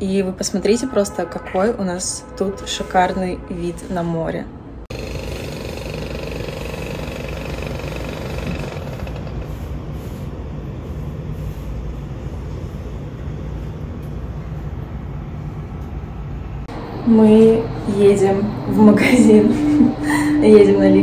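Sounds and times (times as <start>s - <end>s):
steady low rumble: 10.4s - 21.0s
faint higher hum: 12.2s - 21.0s.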